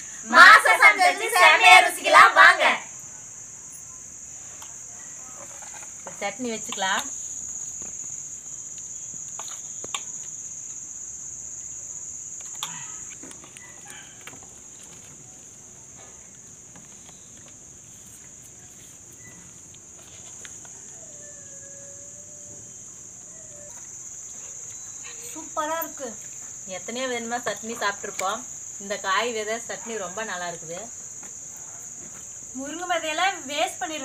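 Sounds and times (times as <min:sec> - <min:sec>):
crickets chirping: 0:00.0 - 0:34.0.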